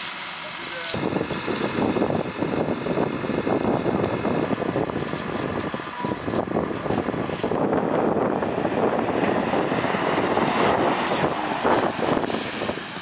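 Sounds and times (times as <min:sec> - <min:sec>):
fire engine pump running: 0:00.0 - 0:13.0
hose water spray: 0:04.5 - 0:07.6.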